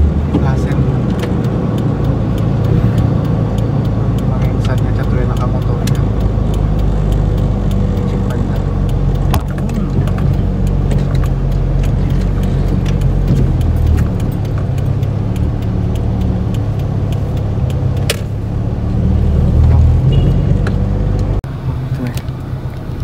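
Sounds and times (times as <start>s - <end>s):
car engine and road hum: 0.0s - 23.0s
small rattles and clicks: 0.3s - 18.4s.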